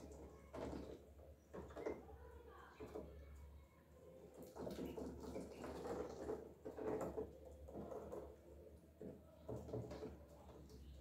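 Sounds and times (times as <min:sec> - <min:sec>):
ducklings pecking and scrabbling: 0:04.2 - 0:11.0.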